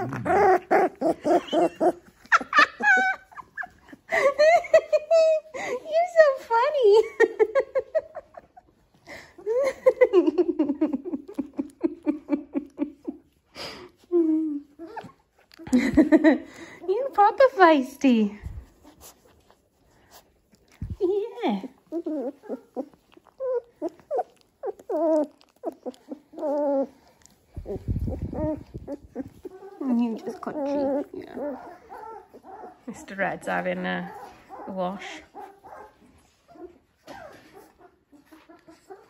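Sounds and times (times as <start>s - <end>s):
puppies whining and squeaking: 0.0s - 6.0s, 7.8s - 17.2s, 18.5s - 39.0s
microphone handling rumble: 27.6s - 29.4s.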